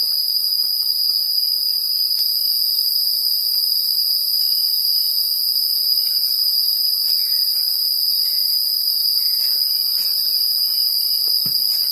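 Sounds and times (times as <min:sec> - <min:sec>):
forest insects buzzing: 0:03.9 - 0:11.9.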